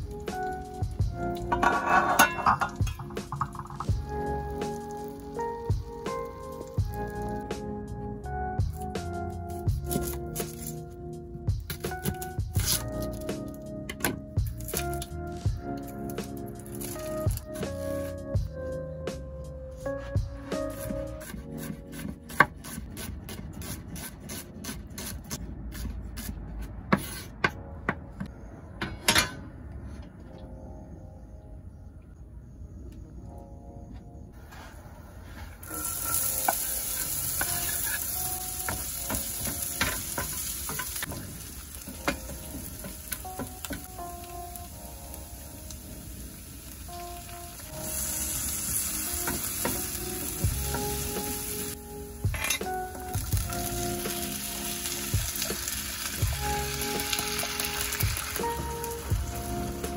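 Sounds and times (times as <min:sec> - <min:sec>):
onion sizzling in oil: 0:00.0 - 0:07.5, 0:35.3 - 0:59.9
wooden spoon scraping a pan: 0:01.5 - 0:03.9, 0:37.4 - 0:38.1.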